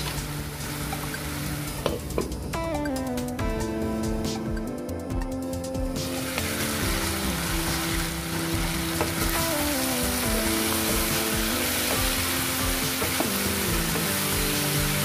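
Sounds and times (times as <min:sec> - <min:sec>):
background music: 0:00.0 - 0:15.0
meat sizzling in hot oil: 0:06.0 - 0:15.0.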